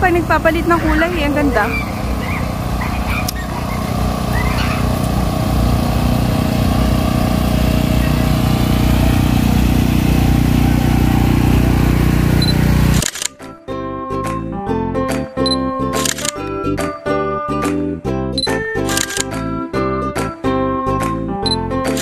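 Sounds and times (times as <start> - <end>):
low engine drone: 0.0 - 13.4, 14.0 - 16.8, 18.4 - 19.4
faint voices: 7.7 - 9.1.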